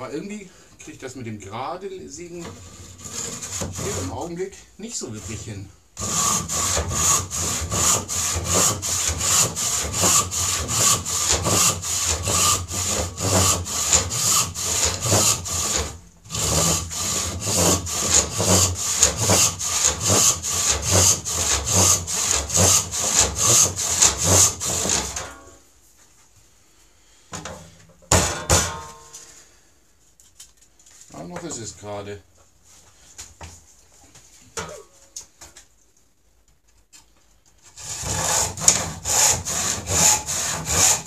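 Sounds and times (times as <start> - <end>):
hand saw rasping through wood: 2.4 - 4.3, 5.1 - 25.2, 37.7 - 41.0.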